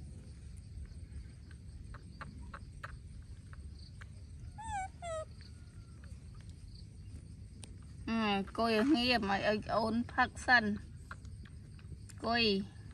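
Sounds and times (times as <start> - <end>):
baby monkey crying: 4.4 - 5.4.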